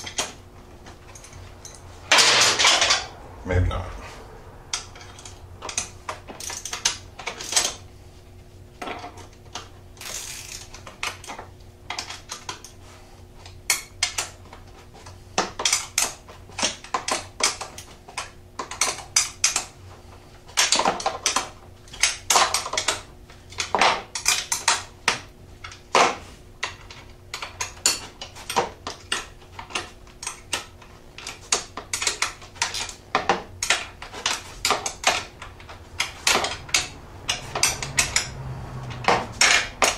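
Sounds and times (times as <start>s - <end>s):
wrenches clicking on bolts: 9.6s - 12.6s, 31.2s - 39.9s.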